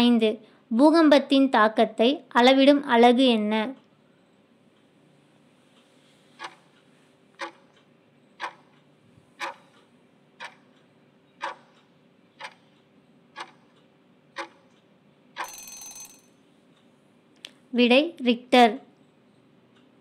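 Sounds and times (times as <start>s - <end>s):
clock ticking: 5.8s - 16.2s
short ringing alarm: 15.4s - 16.4s.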